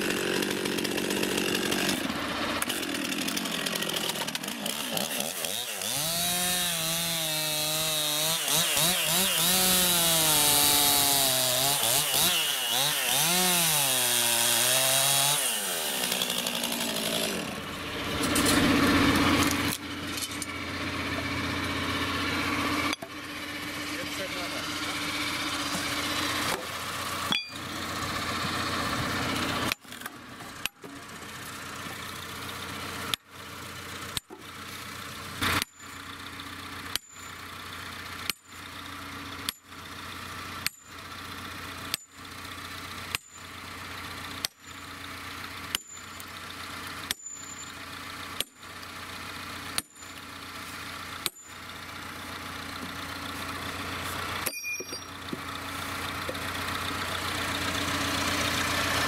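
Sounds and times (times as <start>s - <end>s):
engine idling: 17.4s - 59.0s
sledgehammer striking steel wedges: 25.8s - 27.7s, 47.0s - 48.7s, 51.1s - 51.6s, 54.3s - 55.5s.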